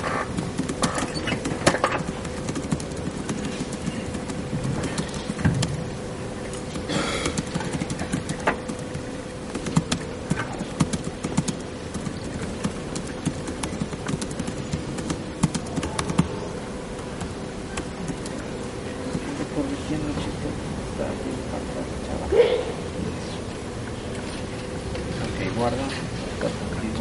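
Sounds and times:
steady hum: 0:00.0 - 0:27.0.

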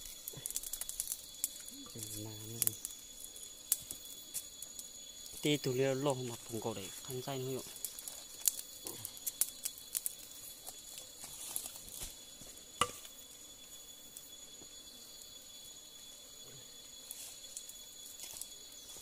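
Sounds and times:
sharp clicks and crackles: 0:00.0 - 0:03.0
insects droning: 0:00.0 - 0:19.0.

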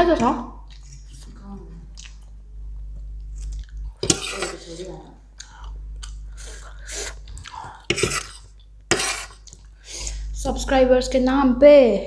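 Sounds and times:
chewing noodles: 0:03.2 - 0:03.9.

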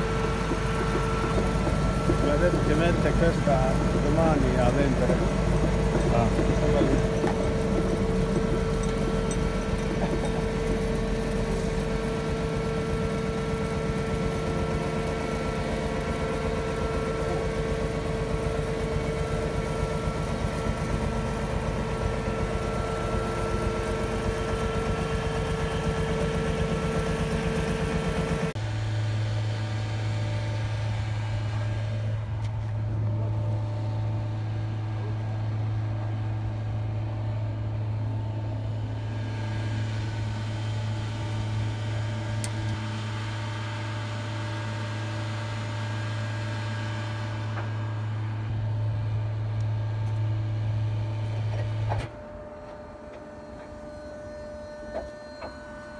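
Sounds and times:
diesel engine with high whine: 0:00.0 - 0:55.9.

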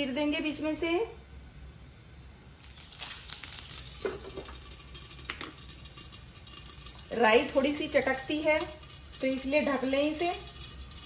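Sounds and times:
seeds sizzling and crackling in oil: 0:02.3 - 0:11.0.

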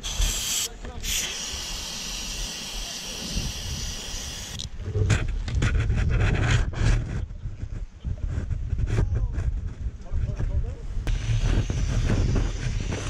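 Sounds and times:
aerosol spray hissing: 0:00.0 - 0:04.6
wind buffeting: 0:02.2 - 0:13.0.

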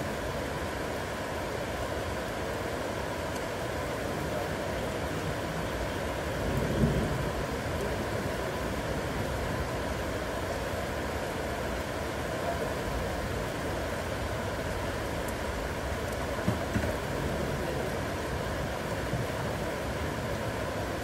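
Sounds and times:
heavy rain: 0:00.0 - 0:21.0
soft knocks: 0:16.4 - 0:17.1.

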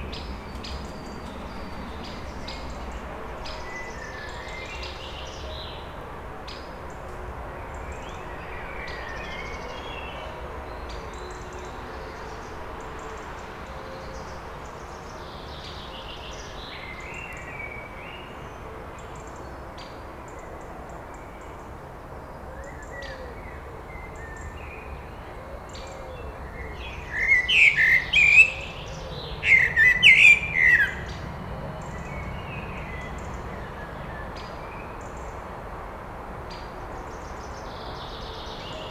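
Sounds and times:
faint background birdsong: 0:00.0 - 0:38.9
blackbird singing: 0:22.6 - 0:31.2.

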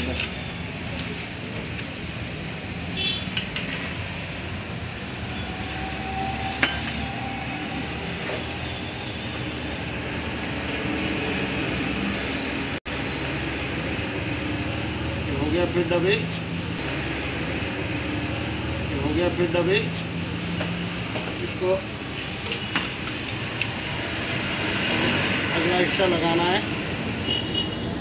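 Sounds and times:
metal tools clinking: 0:00.0 - 0:00.6, 0:06.6 - 0:07.0
sharp ringing clink: 0:06.6 - 0:07.1.

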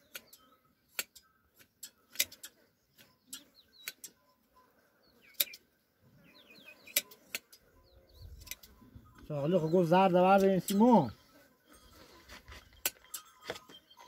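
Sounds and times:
faint bird chirps: 0:00.0 - 0:10.0
shears snipping fleece: 0:00.9 - 0:04.2.

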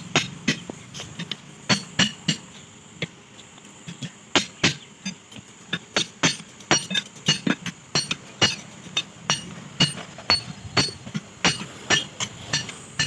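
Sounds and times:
tyre levers clinking on steel rim: 0:06.0 - 0:13.0.

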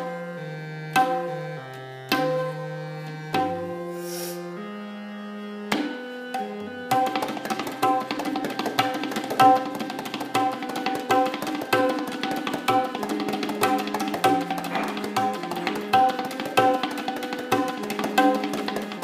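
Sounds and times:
tabla drums played by hand: 0:00.9 - 0:01.4, 0:02.1 - 0:02.7, 0:03.3 - 0:03.9, 0:05.7 - 0:19.0.

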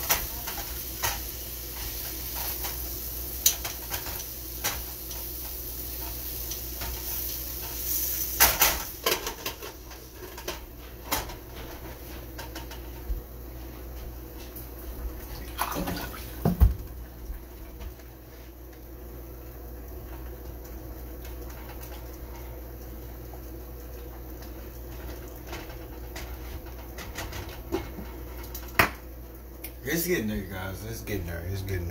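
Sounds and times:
steady hiss: 0:00.0 - 0:10.4.

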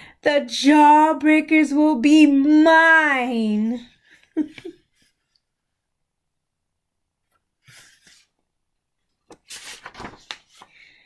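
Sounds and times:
book page rustling: 0:07.3 - 0:11.0.

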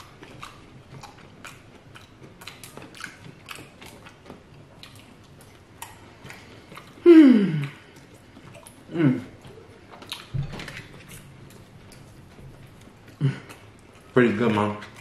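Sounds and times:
chewing crunchy food: 0:00.0 - 0:15.0
person humming mmm: 0:07.0 - 0:07.9, 0:08.9 - 0:09.6.

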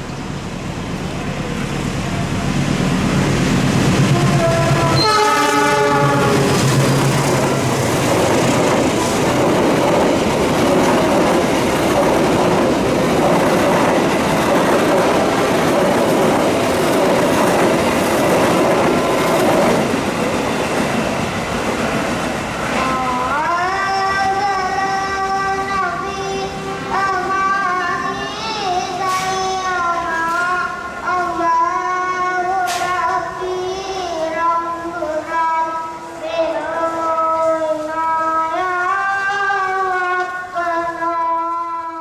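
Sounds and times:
train wheels rolling: 0:00.1 - 0:31.4
train horn: 0:04.0 - 0:07.8.

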